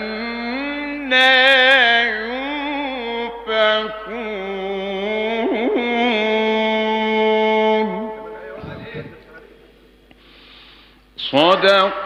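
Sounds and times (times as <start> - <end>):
man reciting melodically: 0.0 - 9.7, 11.2 - 12.0.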